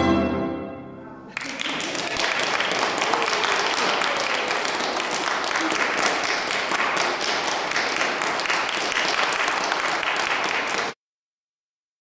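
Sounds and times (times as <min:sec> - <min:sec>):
audience applauding: 0:01.3 - 0:11.0.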